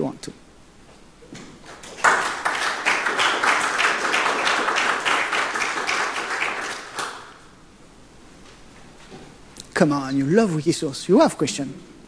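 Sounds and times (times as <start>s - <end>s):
audience applauding: 1.6s - 7.5s.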